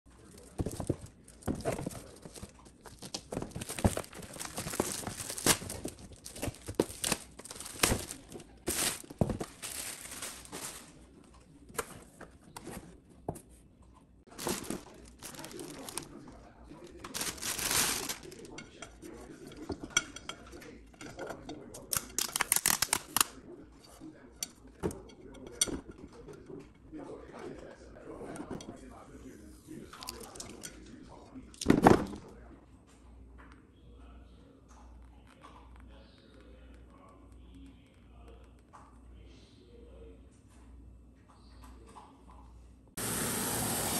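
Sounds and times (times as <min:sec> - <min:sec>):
cardboard and paper rustling: 0:00.1 - 0:13.5, 0:14.3 - 0:19.8.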